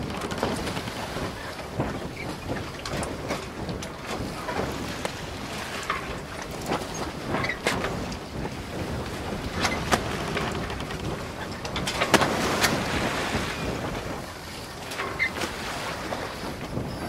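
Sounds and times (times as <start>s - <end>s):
wind rumbling on microphone: 0.0s - 17.0s
iron sculpture creaking and knocking: 9.5s - 12.2s.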